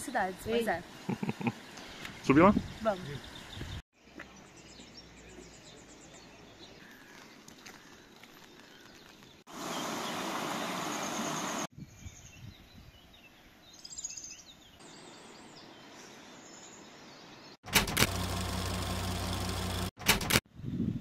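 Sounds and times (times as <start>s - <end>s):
birds chirping: 0.0s - 17.6s.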